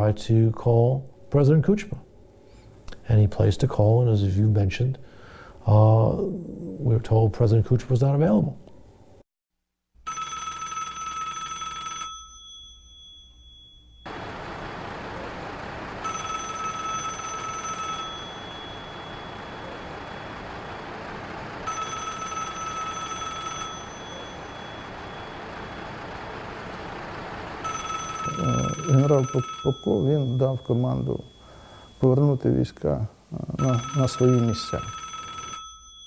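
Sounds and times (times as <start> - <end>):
telephone ringing: 10.0 - 32.8, 33.6 - 36.0
steady background noise: 14.0 - 35.6.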